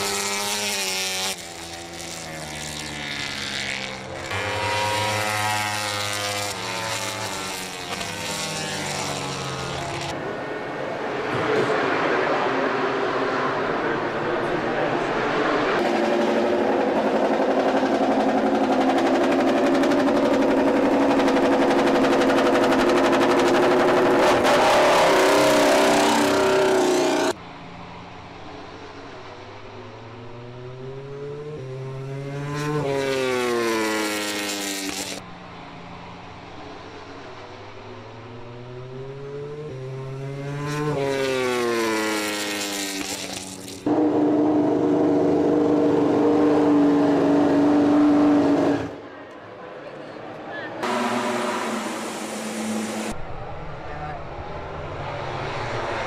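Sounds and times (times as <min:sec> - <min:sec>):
motorcycle engine running: 0:00.0 - 0:10.1, 0:15.8 - 0:24.6
motorcycle passing by at speed: 0:00.0 - 0:10.3, 0:11.1 - 0:27.4, 0:29.8 - 0:35.3, 0:37.8 - 0:49.0.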